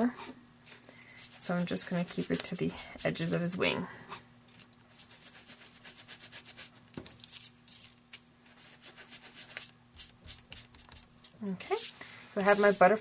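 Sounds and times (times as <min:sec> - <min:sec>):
sponge dabbing on paper: 0:01.2 - 0:03.6, 0:08.5 - 0:11.1, 0:11.7 - 0:13.0.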